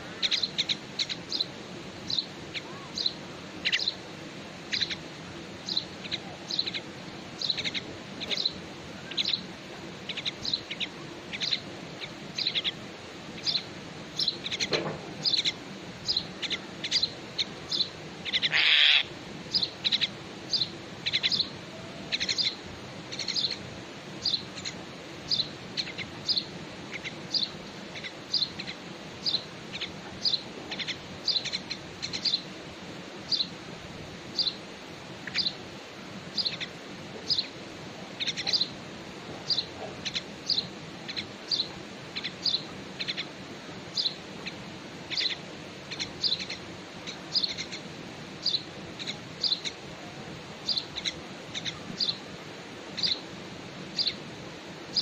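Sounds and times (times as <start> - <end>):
bird chicks high chirps: 2.1 - 4.0, 4.7 - 5.0, 5.6 - 12.8, 13.4 - 23.6, 24.2 - 32.5, 38.2 - 38.8, 39.4 - 43.3, 43.9 - 49.8, 50.6 - 52.2, 52.9 - 53.2, 54.0 - 54.2
harsh bird call: 18.3 - 19.1.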